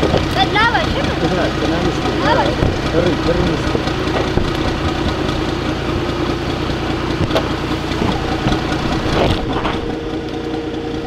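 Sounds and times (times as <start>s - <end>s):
engine running: 0.0s - 11.0s
sharp knocks: 2.5s - 5.2s.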